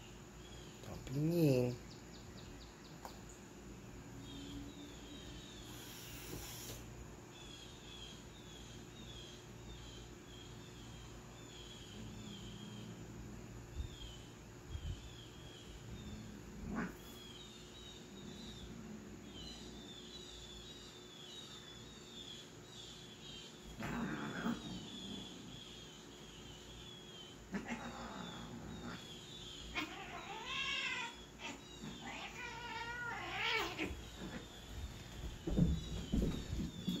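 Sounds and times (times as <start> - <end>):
cat meowing: 29.7 - 34.0.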